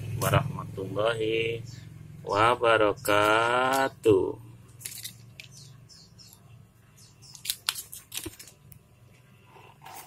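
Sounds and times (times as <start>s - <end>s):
foil pouch crinkling: 7.3s - 8.7s.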